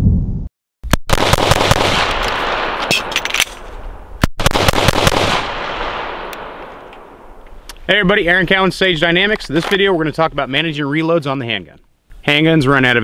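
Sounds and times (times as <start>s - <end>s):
pistol firing rapidly: 1.1s - 2.8s, 4.4s - 6.6s.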